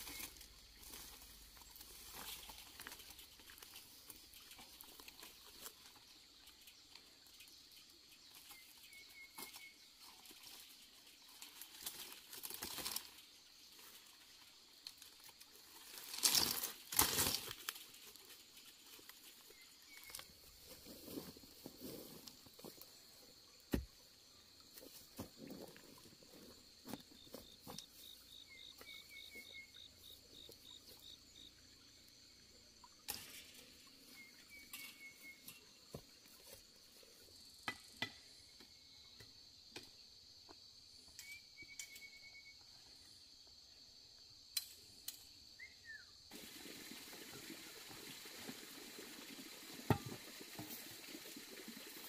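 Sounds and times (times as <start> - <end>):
insect drone: 0.0 - 52.0
hoe working soil: 15.2 - 24.0, 24.6 - 31.5
short chirping calls: 34.0 - 35.8, 41.1 - 42.7, 45.6 - 46.2.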